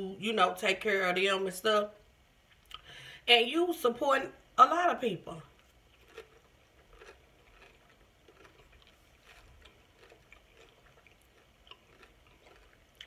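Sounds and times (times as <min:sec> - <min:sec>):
closed-mouth chewing: 0:05.5 - 0:13.0.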